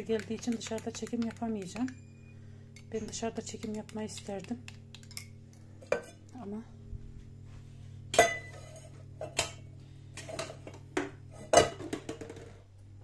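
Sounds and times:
steady low hum: 0.0s - 13.0s
cups and glasses clinking: 8.2s - 9.6s.

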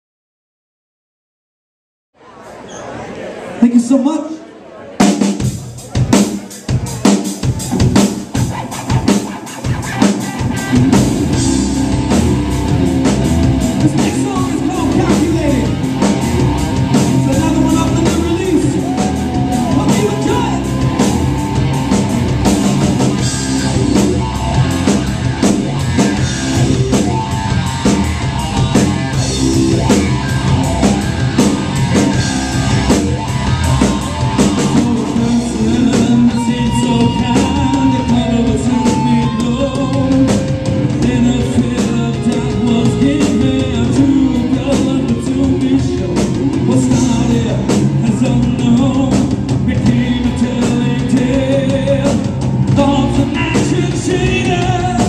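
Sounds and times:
drum kit: 5.0s - 55.0s
distorted electric guitar: 6.7s - 55.0s
electric bass: 7.5s - 55.0s
man singing: 13.6s - 16.0s, 16.9s - 21.3s, 33.8s - 55.0s.

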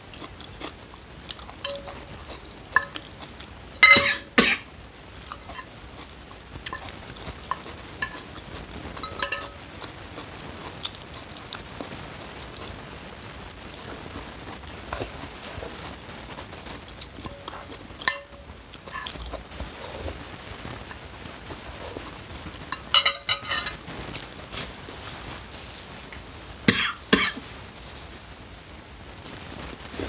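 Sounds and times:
metal spoon clinking bowl: 1.6s - 2.1s, 2.8s - 3.0s, 3.8s - 4.5s, 6.7s - 8.4s, 9.0s - 9.7s, 17.2s - 19.3s, 22.7s - 23.8s.

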